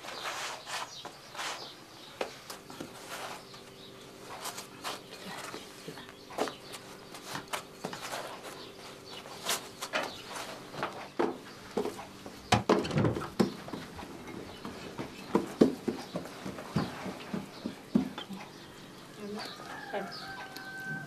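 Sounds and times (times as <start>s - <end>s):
hands patting bread dough: 14.6s - 18.4s.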